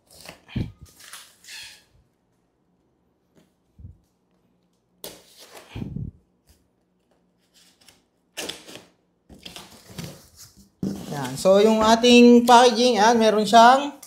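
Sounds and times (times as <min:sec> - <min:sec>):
cardboard scraping: 0:09.5 - 0:11.8.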